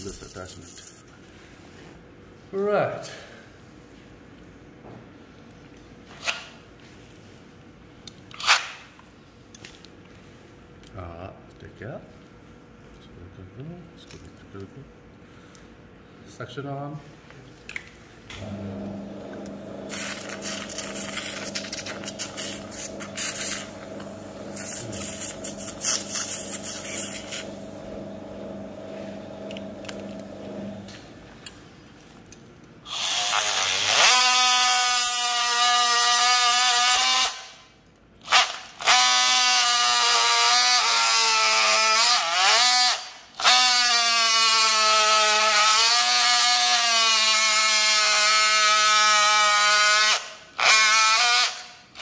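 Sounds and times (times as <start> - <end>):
steady hum: 17.2 - 31.8
surgical suction hissing: 19.3 - 30.8.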